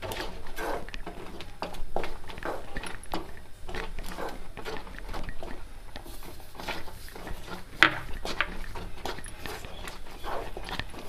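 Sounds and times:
spoon scraping a pan: 0:00.0 - 0:11.0.

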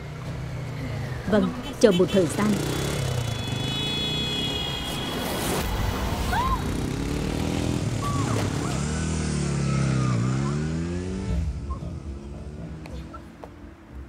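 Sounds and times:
motorcycle engine revving past: 0:06.6 - 0:12.9.

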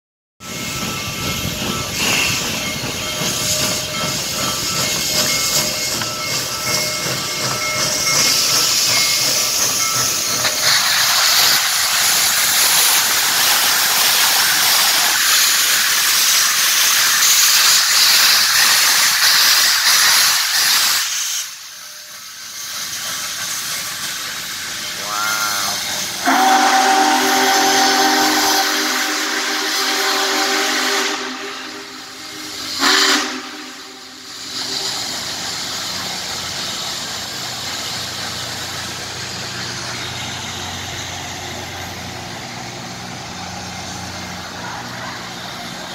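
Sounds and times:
steam hissing: 0:00.4 - 0:45.9
steam locomotive passing: 0:00.4 - 0:45.9
steam whistle chord: 0:25.1 - 0:34.9.

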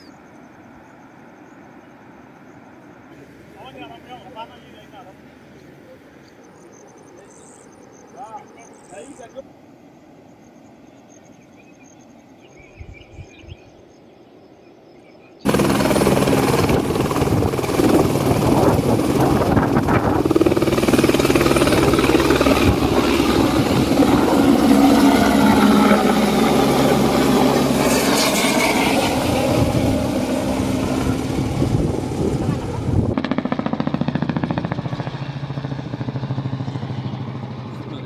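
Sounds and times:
helicopter rotor and engine: 0:15.4 - 0:38.0.

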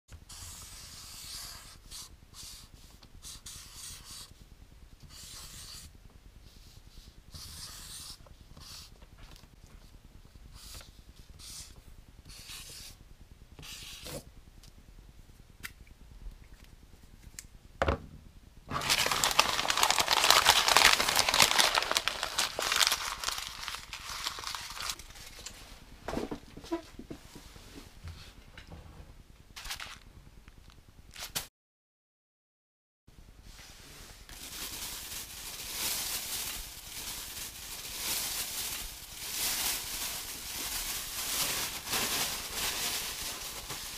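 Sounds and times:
marker pen scratching on paper: 0:00.3 - 0:04.3, 0:05.0 - 0:05.9, 0:06.5 - 0:09.0, 0:10.5 - 0:13.0, 0:13.6 - 0:14.2
rustling and crumpling: 0:18.7 - 0:27.4, 0:29.6 - 0:31.4, 0:34.2 - 0:43.9.

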